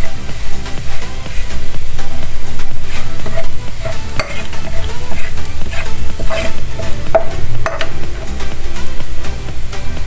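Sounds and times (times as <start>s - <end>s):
garlic sizzling in oil: 0.0s - 10.0s
spatula scraping metal pan: 1.1s - 8.6s.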